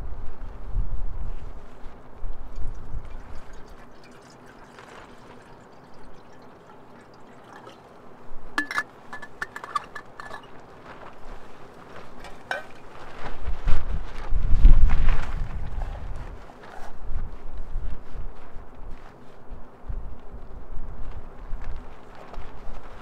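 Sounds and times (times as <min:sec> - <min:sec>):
water trickling into a pot: 0:02.4 - 0:10.6
metallic clinks and taps: 0:08.6 - 0:10.5.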